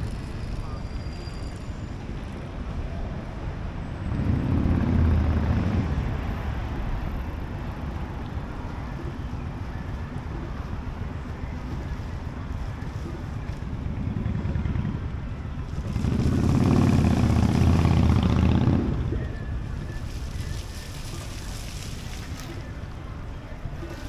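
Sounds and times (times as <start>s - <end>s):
traffic rumble: 0.0s - 24.0s
vehicle driving past close: 4.0s - 7.1s, 13.9s - 20.0s.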